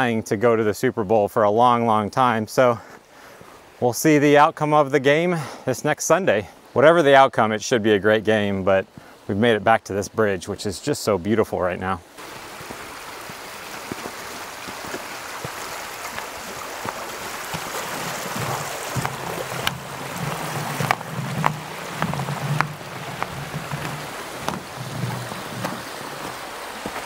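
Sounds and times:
stream rushing: 0:12.1 - 0:27.0
sharp taps: 0:17.5 - 0:26.4.

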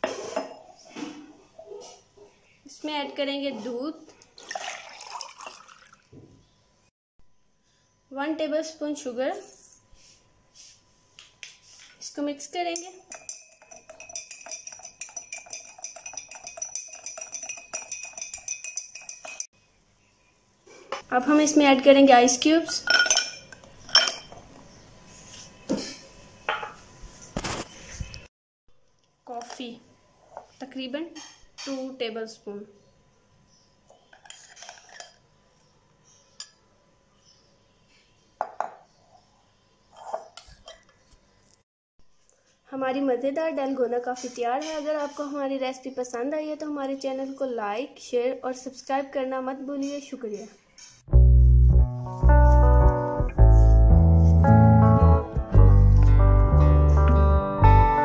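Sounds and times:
spoon clinking in glass mug: 0:12.8 - 0:19.5, 0:22.8 - 0:24.4, 0:34.1 - 0:35.2.

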